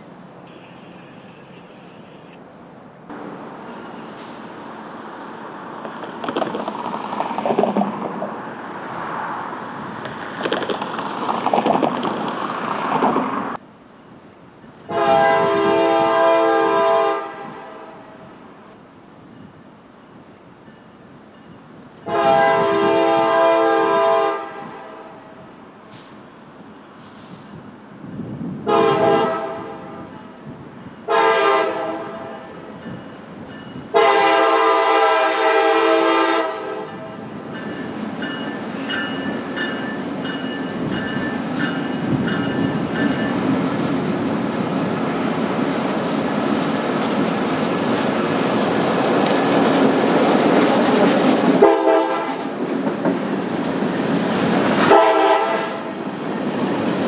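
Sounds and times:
train rumbling past: 0:00.0 - 0:57.0
train horn blasts: 0:00.4 - 0:02.2, 0:14.9 - 0:18.3, 0:22.0 - 0:25.4, 0:28.6 - 0:30.4, 0:31.0 - 0:32.6, 0:33.9 - 0:37.2, 0:51.6 - 0:52.4, 0:54.8 - 0:56.0
wheels clickety-clack: 0:05.8 - 0:08.3, 0:10.0 - 0:13.3, 0:46.0 - 0:55.0.

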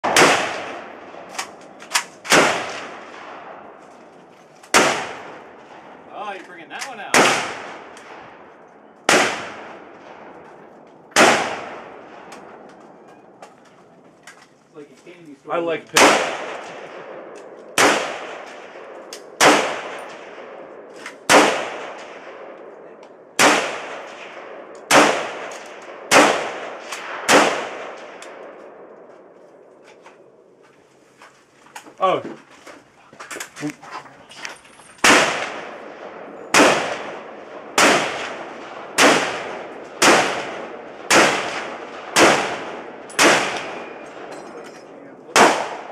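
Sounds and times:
rifle shots: 0:00.0 - 0:03.8, 0:04.7 - 0:06.1, 0:06.8 - 0:12.7, 0:15.9 - 0:28.9, 0:35.0 - 0:45.9.

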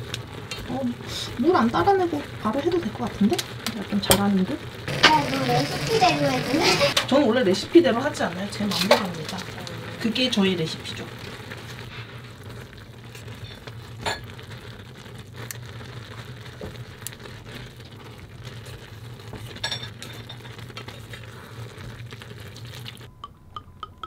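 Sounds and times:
noodles sizzling in a pan: 0:00.0 - 0:23.1.

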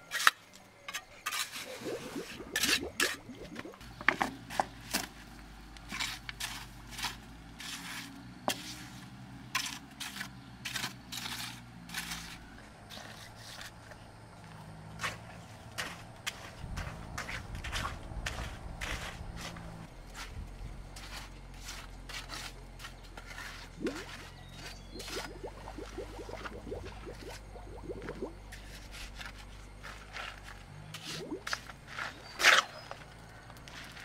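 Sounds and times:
scraping with clicks and knocks: 0:00.0 - 0:14.1, 0:14.9 - 0:25.4, 0:28.4 - 0:34.0
faint low hum: 0:10.7 - 0:31.5.

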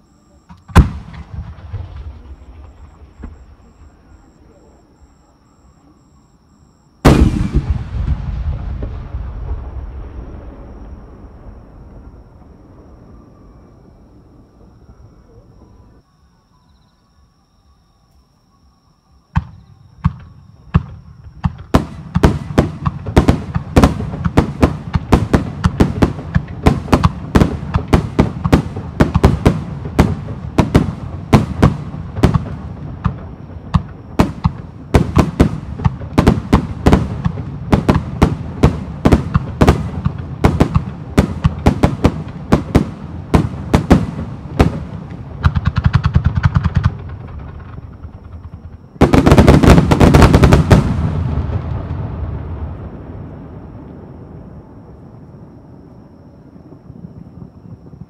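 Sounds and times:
fireworks bangs: 0:00.5 - 0:04.4, 0:07.0 - 0:13.2, 0:19.4 - 0:55.3
fireworks crackling: 0:07.0 - 0:12.7, 0:20.2 - 0:54.4.

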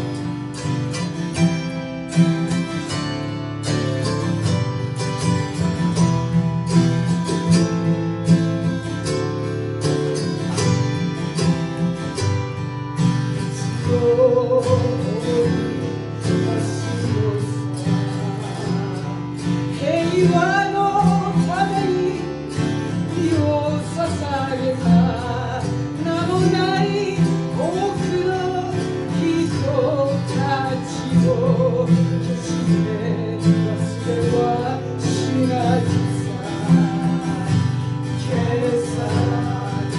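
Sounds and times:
acoustic guitar: 0:00.0 - 0:39.9
wordless vocal melody: 0:00.0 - 0:39.9.

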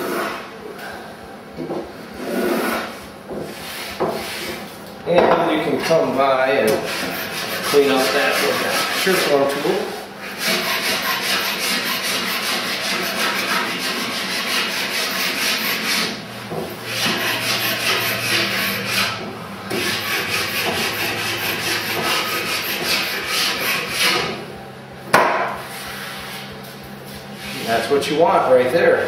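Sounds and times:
hand plane shaving wood: 0:06.8 - 0:16.2, 0:16.8 - 0:24.4.

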